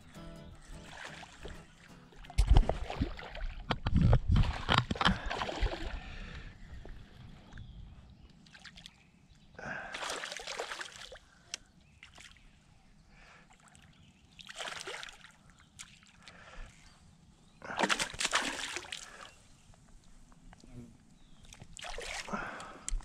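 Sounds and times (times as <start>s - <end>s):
fish splashing at water surface: 17.7s - 19.3s.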